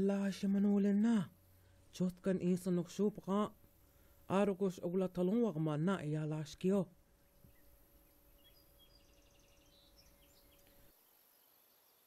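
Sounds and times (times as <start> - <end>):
faint steady hum: 0.0 - 12.0
faint bird chirps: 7.1 - 12.0.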